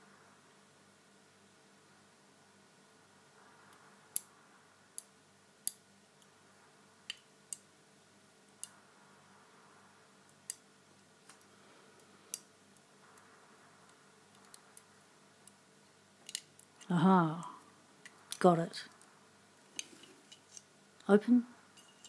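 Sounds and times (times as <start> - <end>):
faint metal scraping: 19.0 - 20.8, 21.6 - 22.0.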